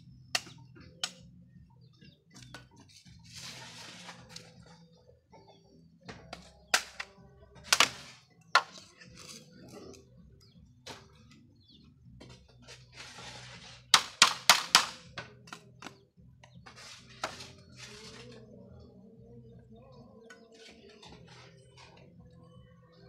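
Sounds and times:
rustling and scraping: 0:02.4 - 0:04.8, 0:07.7 - 0:10.0, 0:12.2 - 0:14.4, 0:16.6 - 0:18.6
sharp knocks on bamboo: 0:06.1 - 0:07.1, 0:14.0 - 0:15.9.

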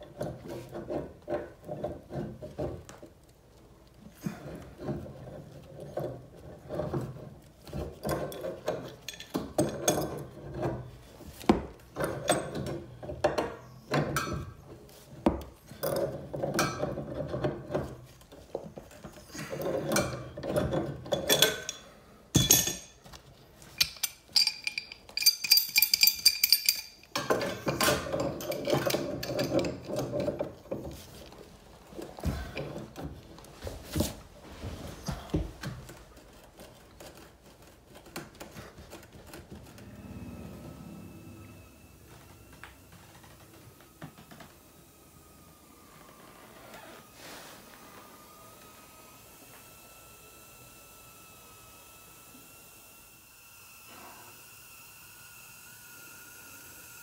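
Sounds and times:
wrench clinking and scraping on metal: 0:04.4 - 0:14.6, 0:19.3 - 0:31.4.

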